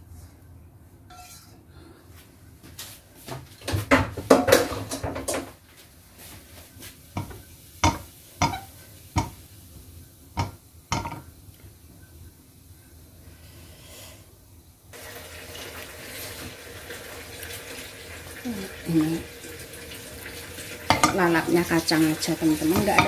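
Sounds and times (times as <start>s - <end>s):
spatula scraping frying pan: 1.1s - 1.6s, 7.2s - 9.4s, 20.9s - 23.0s
spatula knocking against pan: 7.2s - 9.4s, 10.4s - 11.3s.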